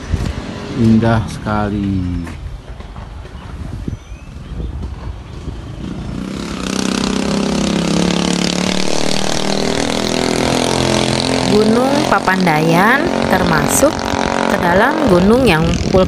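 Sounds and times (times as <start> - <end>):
vehicle engine running: 4.8 - 16.0.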